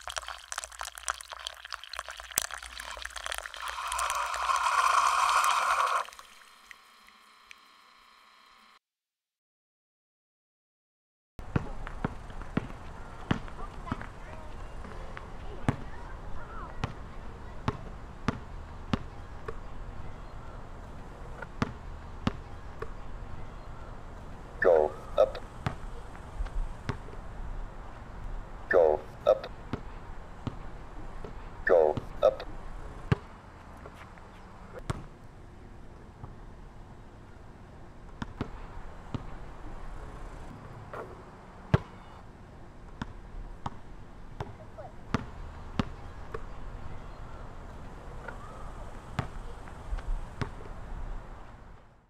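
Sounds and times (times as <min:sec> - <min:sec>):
basketball bouncing on court: 0:11.4 - 0:14.2, 0:15.6 - 0:16.0, 0:16.6 - 0:19.6, 0:21.6 - 0:23.0, 0:29.7 - 0:32.2, 0:34.8 - 0:35.1, 0:38.1 - 0:39.4, 0:41.7 - 0:42.1, 0:44.4 - 0:46.5, 0:49.2 - 0:49.8
basketball bouncing on hard court: 0:11.5 - 0:14.1, 0:21.6 - 0:22.9, 0:41.7 - 0:41.9, 0:44.4 - 0:46.5.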